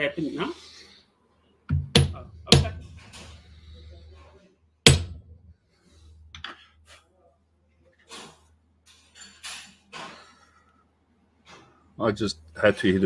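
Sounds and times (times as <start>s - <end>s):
mallet striking metal: 1.7s - 3.1s, 4.8s - 5.3s.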